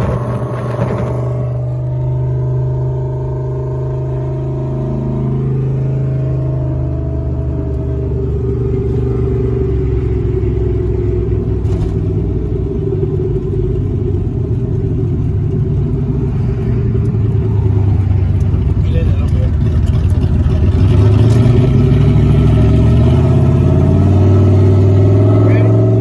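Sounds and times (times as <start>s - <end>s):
car engine droning in cabin: 0.0s - 26.0s.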